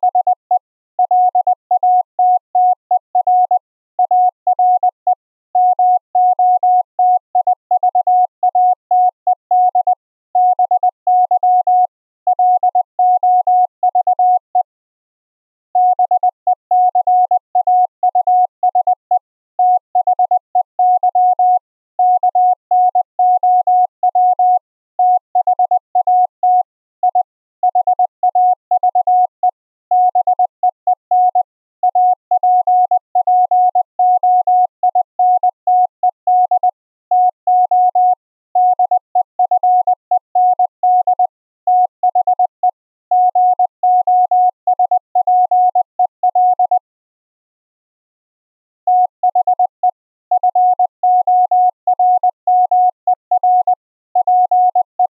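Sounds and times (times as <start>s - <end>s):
morse code beeps: 43.2s - 46.9s.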